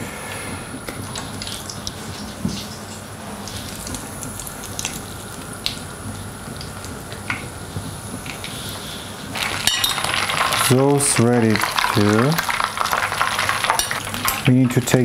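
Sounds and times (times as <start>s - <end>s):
oil sizzling: 0.9s - 15.0s.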